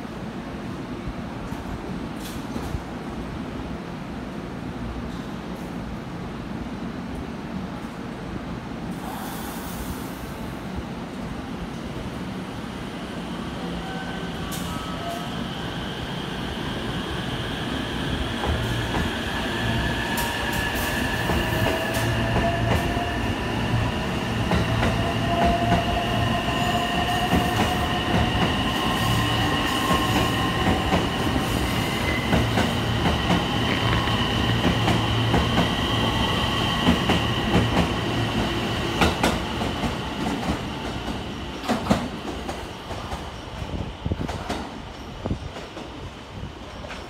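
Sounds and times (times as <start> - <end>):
train wheels rumbling and clattering: 1.3 - 3.4, 14.4 - 47.0.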